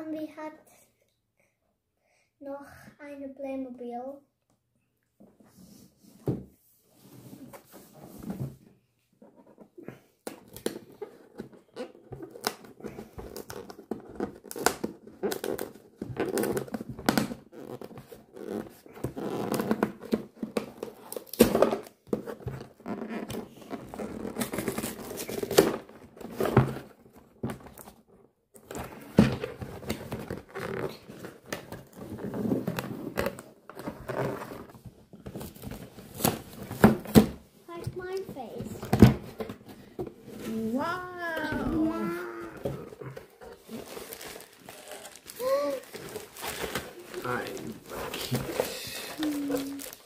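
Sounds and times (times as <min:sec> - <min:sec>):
cardboard tearing and rustling: 0:10.4 - 0:27.9, 0:40.2 - 0:50.0.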